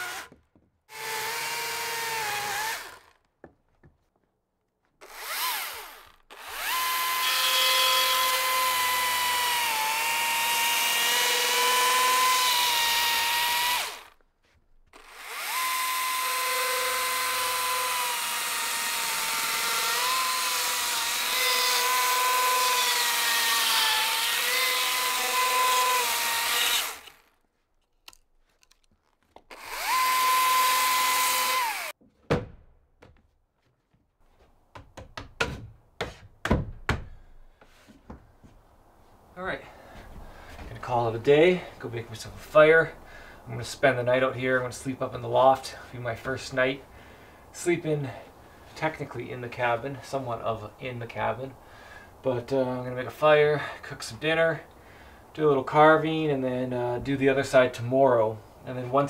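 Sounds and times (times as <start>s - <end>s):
chainsaw cutting into log: 0.0s - 3.3s, 5.0s - 14.2s, 14.9s - 27.4s, 28.0s - 32.0s.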